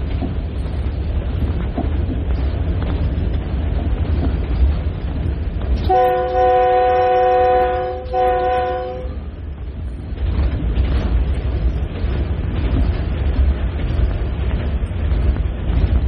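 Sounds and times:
running train rumble: 0.0 - 16.0
wind buffeting microphone: 0.0 - 16.0
locomotive air horn chord: 5.9 - 9.2.

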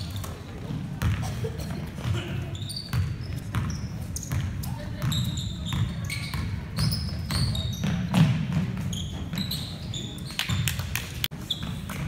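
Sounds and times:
sneakers squeaking: 0.0 - 12.0
basketball bouncing on wood floor: 1.0 - 1.2, 2.9 - 6.6, 7.3 - 9.5.

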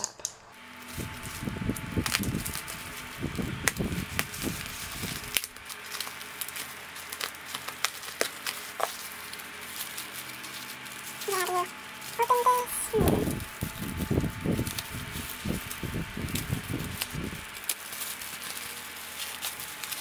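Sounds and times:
bubble wrap crinkling: 0.0 - 20.0.

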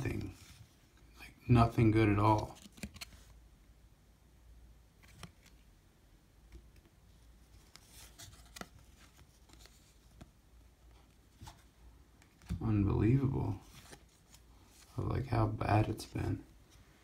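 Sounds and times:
cards sliding and ticking: 2.4 - 3.4, 5.0 - 5.7, 6.5 - 12.6.

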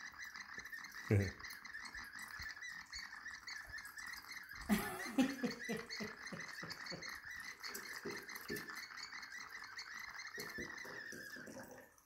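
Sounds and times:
warbling chirp from pour spout: 0.0 - 12.0
liquid glugging gurgle: 10.4 - 12.0.

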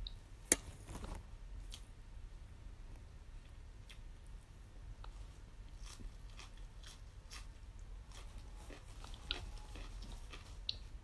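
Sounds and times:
low steady hum: 0.0 - 11.0
chewing leaf crunches: 5.7 - 11.0.

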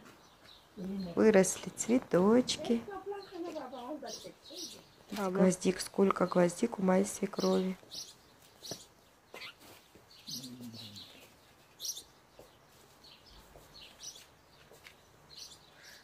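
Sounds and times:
small birds chirping: 0.0 - 16.0
low voice-like sound: 10.3 - 11.1.

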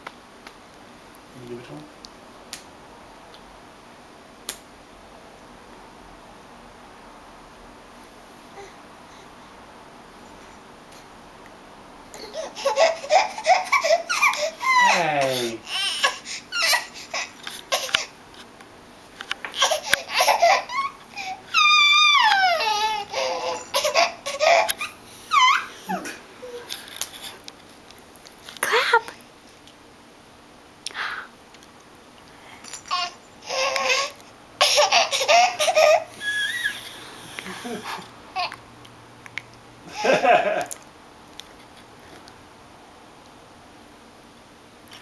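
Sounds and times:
baby squealing and babbling: 12.2 - 18.1, 19.6 - 26.7, 32.8 - 36.8
steady hiss: 30.8 - 38.3.

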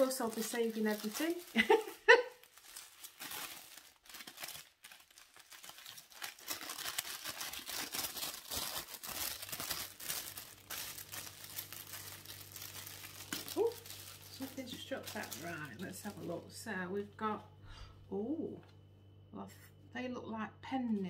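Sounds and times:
wrapping paper crinkling: 0.0 - 16.5.

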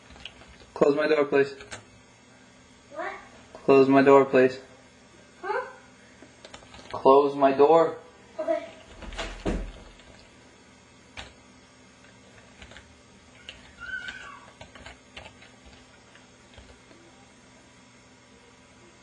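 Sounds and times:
door thumping shut: 9.0 - 9.9.

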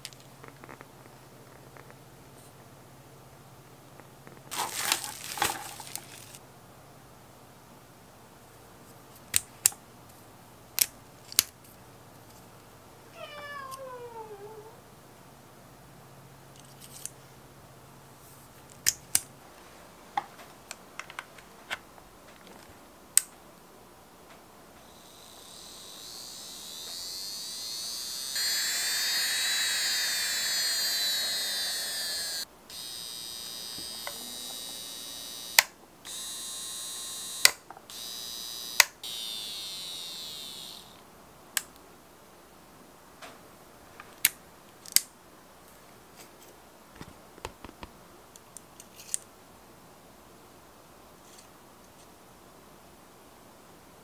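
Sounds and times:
cat meowing: 13.1 - 14.8
nail drill motor whining: 24.8 - 41.0.

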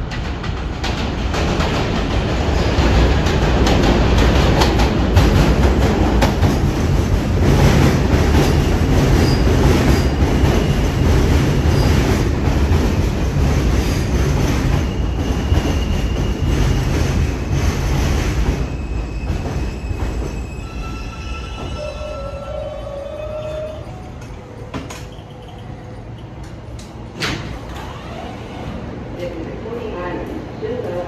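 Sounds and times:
train rumble and wheel clatter: 0.0 - 31.0
wheel squeal: 24.8 - 26.0.

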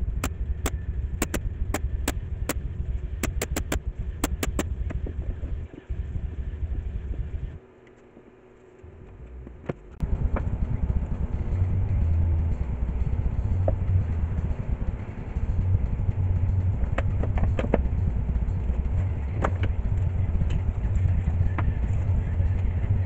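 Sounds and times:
low motor-like rumble: 0.0 - 23.0
sharp taps and knocks: 0.2 - 2.6, 3.2 - 5.1.

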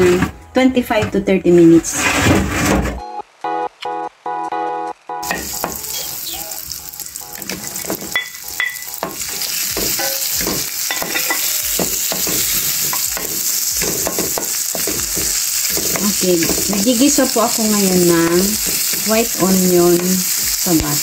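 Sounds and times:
wooden spatula scraping a pan: 1.1 - 3.0, 9.2 - 20.4
onion sizzling in a pan: 5.2 - 21.0.

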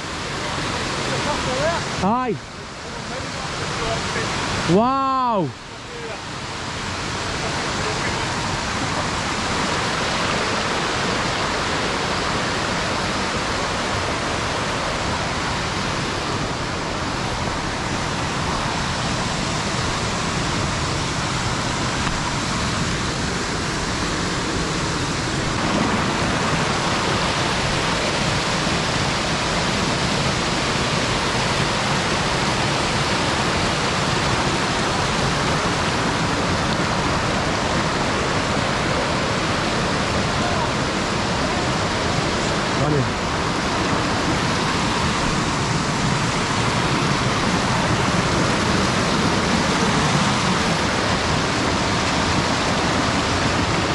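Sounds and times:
rushing white water: 0.0 - 53.9.

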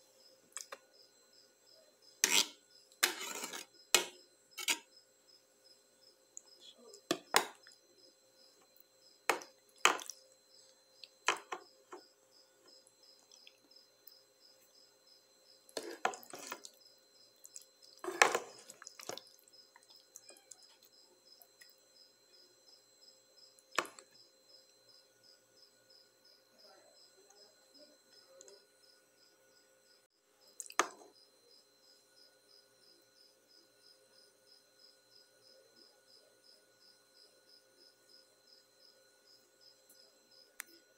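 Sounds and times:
cricket chirping: 0.0 - 40.9
metal spoon scraping pot: 2.2 - 4.9, 15.8 - 16.7, 18.0 - 19.1.

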